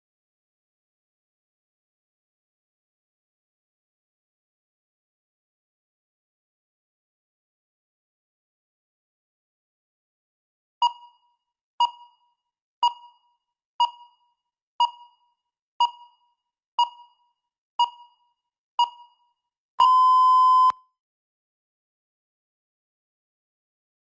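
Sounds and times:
timer short beeps: 0:10.8 - 0:12.2, 0:12.8 - 0:15.2, 0:15.8 - 0:17.2, 0:17.8 - 0:19.2, 0:19.8 - 0:20.8
long steady beep: 0:19.8 - 0:20.8.

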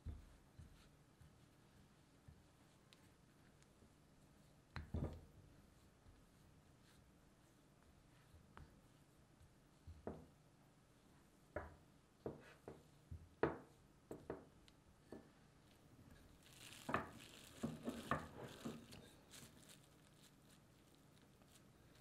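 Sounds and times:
plastic wrap crinkling: 0:16.1 - 0:22.0.

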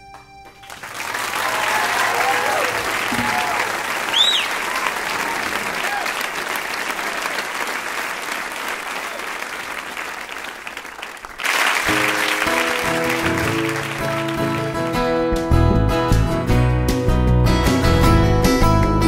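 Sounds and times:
audience applause: 0:00.4 - 0:15.1
acoustic guitar picking: 0:12.0 - 0:19.0.

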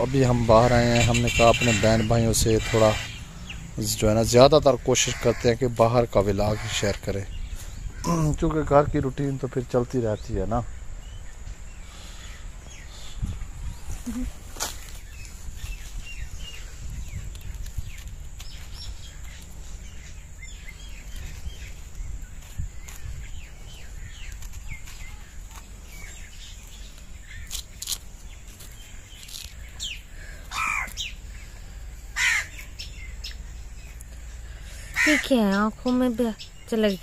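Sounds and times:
low steady rumble: 0:00.0 - 0:08.0
small birds chirping: 0:00.0 - 0:37.0
crow cawing: 0:30.2 - 0:31.1, 0:32.1 - 0:32.7, 0:34.8 - 0:35.4.

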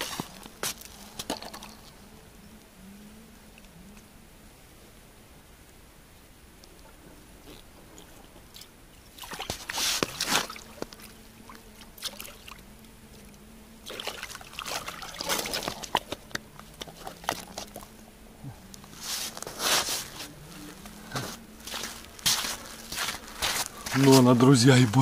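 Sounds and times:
fish thrashing and splashing: 0:08.6 - 0:12.6, 0:13.8 - 0:17.9.

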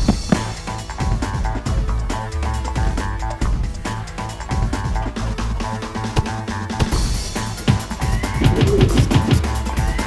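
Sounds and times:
steady drum beat: 0:00.0 - 0:05.7, 0:06.6 - 0:10.0
soundtrack music with guitar: 0:00.0 - 0:10.0.

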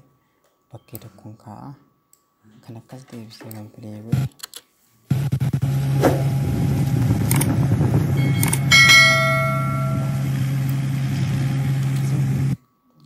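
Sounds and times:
mower engine hum: 0:05.6 - 0:12.6
ringing bell-like tone: 0:08.1 - 0:10.6.

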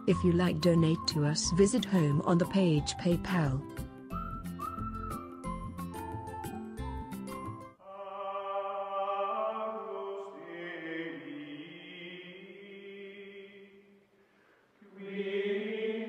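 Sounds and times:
choir chanting held notes: 0:14.8 - 0:16.0.

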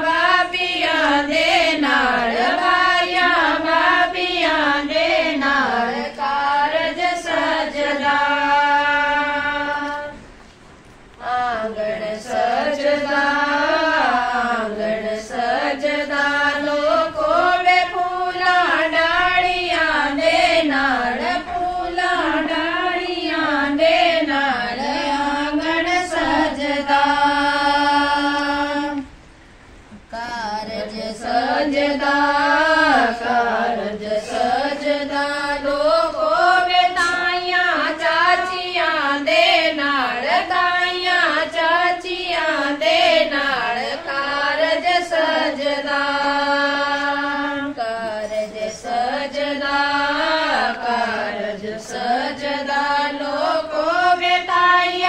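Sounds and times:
women singing together: 0:00.0 - 0:10.4, 0:11.1 - 0:29.2, 0:29.9 - 0:55.0.

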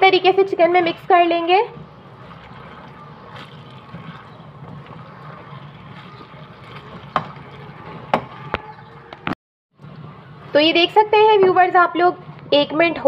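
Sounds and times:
spatula stirring thick gravy: 0:00.2 - 0:08.9.

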